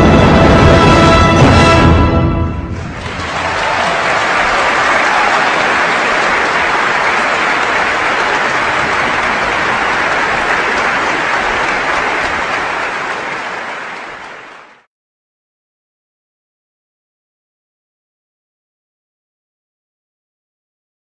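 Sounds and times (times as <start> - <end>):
crowd clapping: 2.8 - 14.9.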